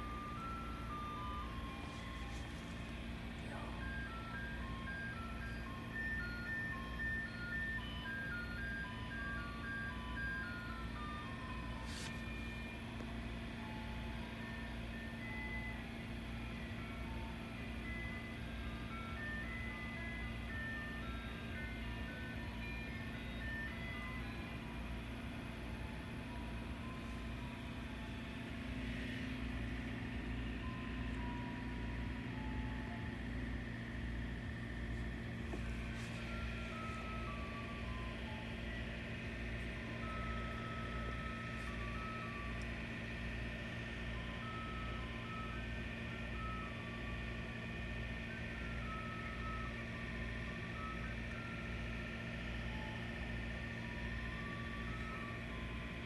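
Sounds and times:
electronic chime tune: 0:00.0 - 0:13.0, 0:25.7 - 0:43.0
truck idling hum: 0:00.0 - 0:56.0.

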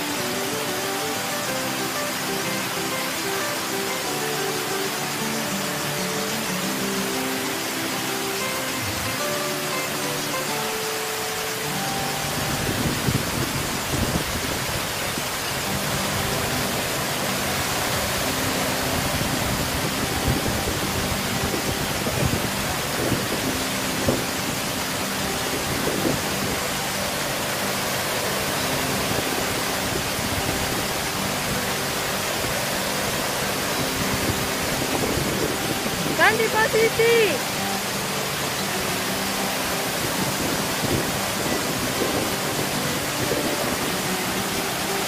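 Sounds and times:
waterfall splashing into pool: 0:00.0 - 0:45.0.

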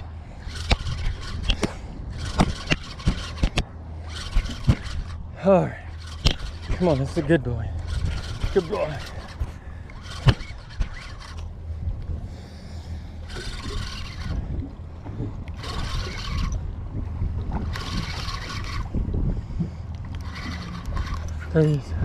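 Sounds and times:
steady low rumble: 0:00.0 - 0:22.0
fishing reel cranking: 0:00.4 - 0:11.6, 0:13.2 - 0:14.6, 0:15.4 - 0:16.7, 0:17.6 - 0:19.0, 0:19.9 - 0:21.8.

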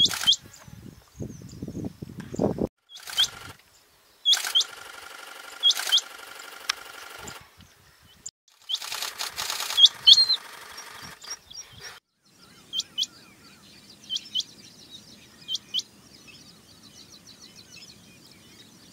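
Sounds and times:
quail calling in sharp paired notes: 0:02.9 - 0:03.5, 0:04.3 - 0:06.2, 0:08.7 - 0:11.8.

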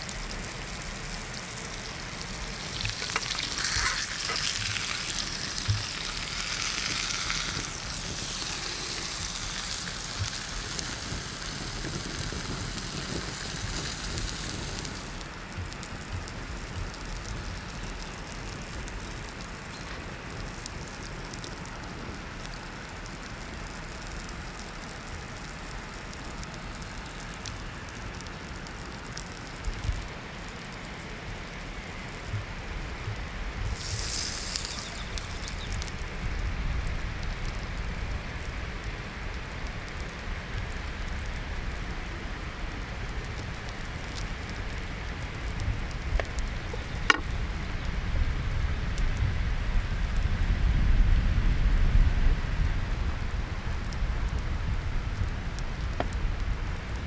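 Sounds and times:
meat sizzling: 0:00.0 - 0:21.6, 0:32.2 - 0:38.4
campfire crackling: 0:00.0 - 0:57.0.

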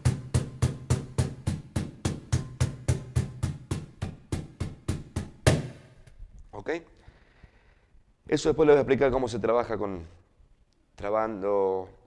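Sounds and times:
cajon slaps with low ringing tone: 0:00.0 - 0:06.2.

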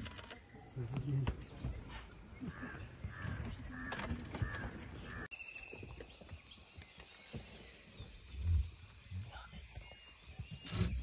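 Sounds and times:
crows cawing: 0:02.4 - 0:05.3
insect chorus: 0:05.3 - 0:11.0.

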